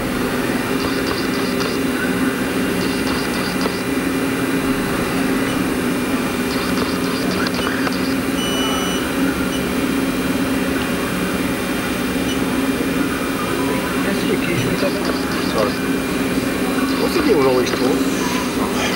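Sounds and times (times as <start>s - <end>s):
machine humming: 0.0s - 18.9s.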